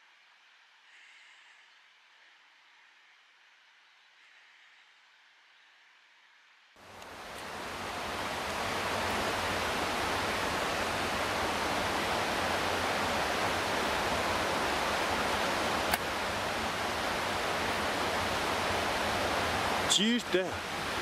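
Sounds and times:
water rushing over rocks: 6.8s - 21.0s.

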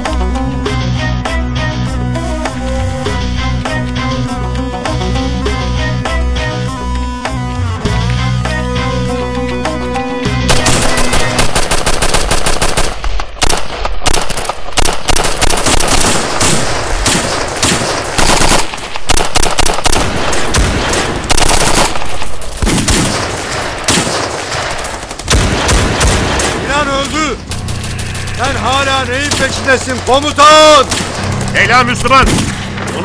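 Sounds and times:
music: 0.0s - 11.8s, 26.9s - 33.0s
automatic gunfire bursts: 10.5s - 26.7s.

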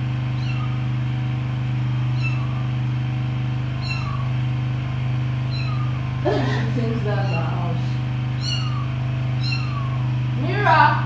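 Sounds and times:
loud steady low hum: 0.0s - 11.0s
kitten mewing: 0.3s - 0.9s, 2.1s - 2.8s, 3.8s - 4.4s, 5.5s - 10.2s.

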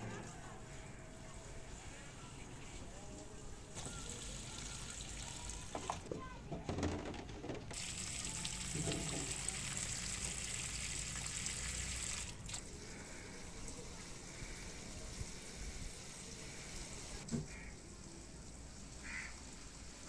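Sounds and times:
water splashing from watering can: 3.8s - 6.1s, 7.7s - 15.4s.

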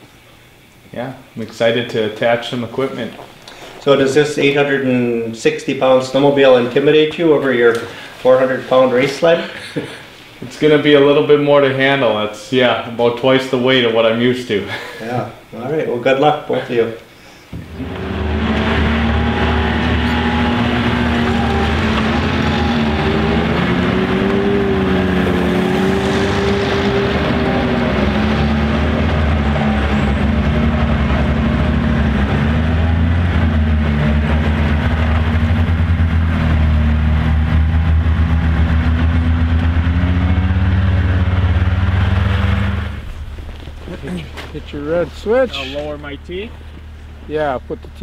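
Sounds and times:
snowmobile engines running: 17.5s - 48.0s.

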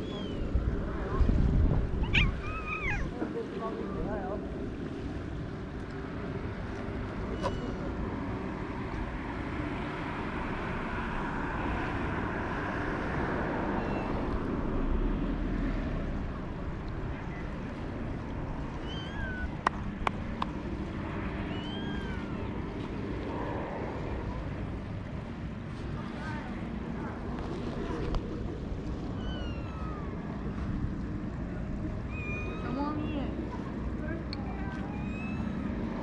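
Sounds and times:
wind on microphone: 0.0s - 7.3s.

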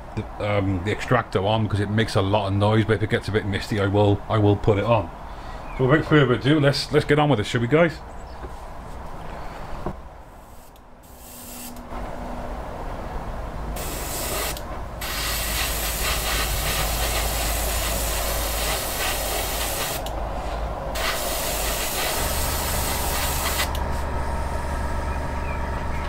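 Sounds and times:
low steady hum: 0.0s - 26.0s
airbrush hissing: 10.4s - 11.8s, 13.8s - 24.0s.

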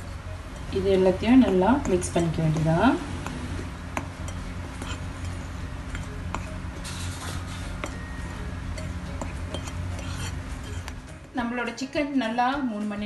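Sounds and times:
spoon scraping flour: 0.0s - 11.1s
low steady hum: 0.0s - 13.0s
spoon clinking against plate: 4.0s - 11.0s.

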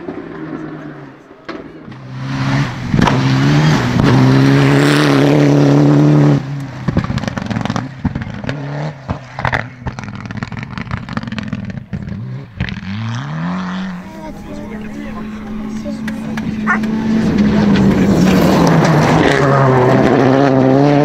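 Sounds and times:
car engine at full throttle: 0.0s - 21.0s
exhaust pops and crackles: 2.9s - 4.3s, 6.5s - 13.0s.

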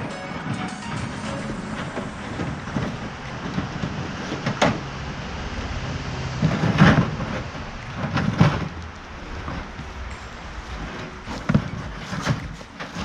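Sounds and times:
wire-mesh cage scraping on wood: 6.2s - 13.0s.

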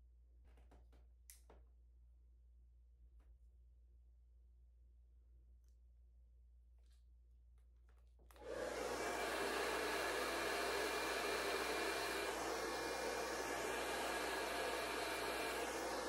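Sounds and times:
hair dryer blowing: 8.4s - 16.0s.

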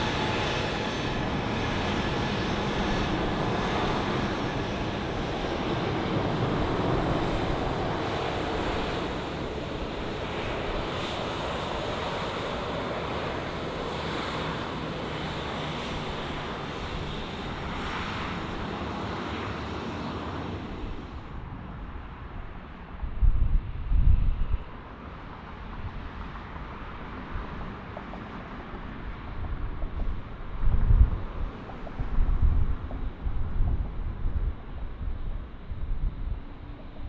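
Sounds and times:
jet engines idling: 0.0s - 23.0s.

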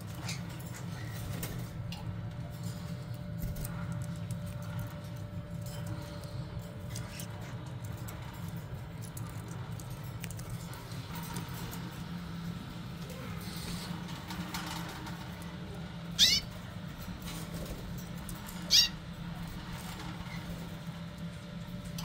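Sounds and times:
steady low hum: 0.0s - 22.0s
canary calling: 16.1s - 16.6s, 18.6s - 19.1s.

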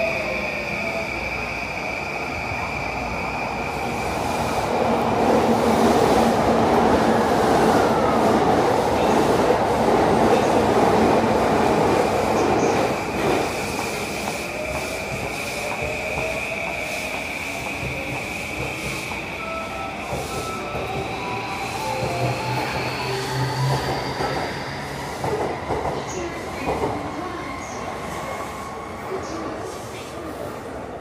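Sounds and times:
train rumble and rail noise: 0.0s - 31.0s
falling train whine: 11.1s - 26.3s.

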